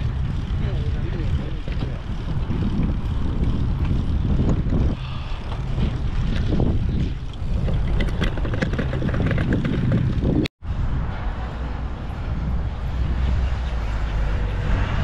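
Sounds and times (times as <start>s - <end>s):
bicycle rolling over paving: 0.0s - 10.5s
wind buffeting microphone: 0.0s - 15.0s.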